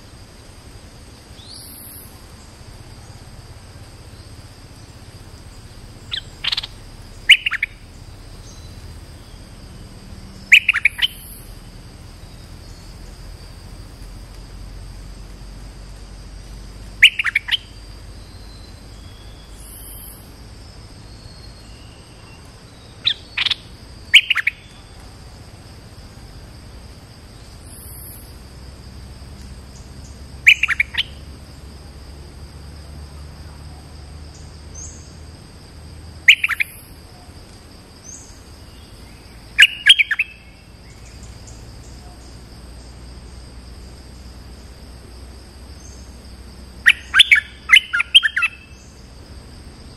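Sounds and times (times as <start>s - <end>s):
high insect drone: 0.0s - 49.9s
bird chirping sharply: 6.1s - 7.8s, 10.5s - 11.4s, 36.3s - 36.8s, 39.6s - 40.4s, 46.9s - 48.6s.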